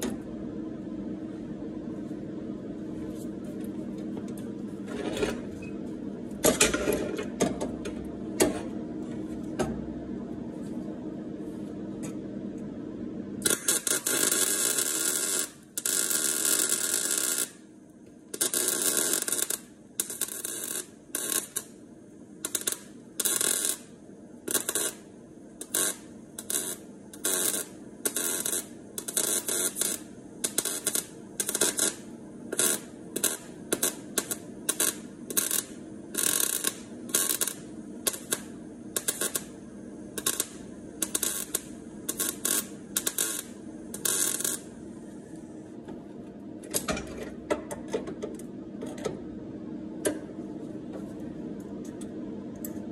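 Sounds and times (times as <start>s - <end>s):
welder arc crackling: 13.4s - 17.7s, 18.3s - 21.8s, 22.4s - 45.6s.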